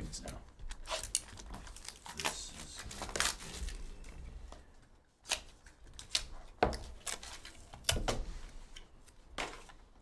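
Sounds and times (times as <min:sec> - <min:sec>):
cards and cardboard clicking: 0:05.2 - 0:09.8.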